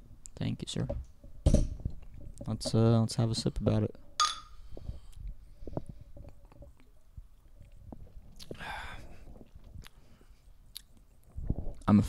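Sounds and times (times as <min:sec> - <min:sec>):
breathy sound: 0:08.4 - 0:10.4.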